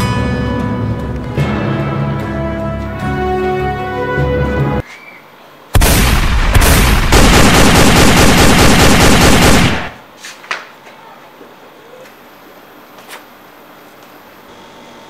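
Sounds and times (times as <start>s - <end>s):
rapid gunfire: 5.8s - 10.0s.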